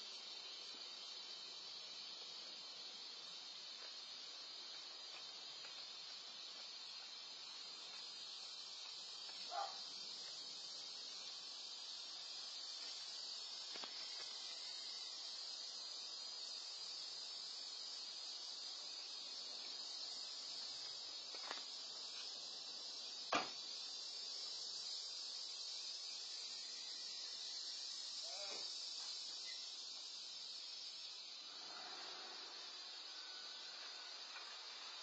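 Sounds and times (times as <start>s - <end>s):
insects chorus: 0.0s - 35.0s.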